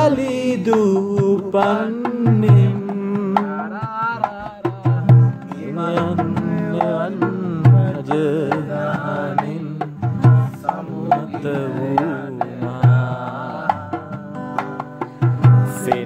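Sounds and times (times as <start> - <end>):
acoustic guitar: 0.0 - 16.0
deep drum-like thumps: 0.0 - 16.0
two men singing: 0.0 - 16.0.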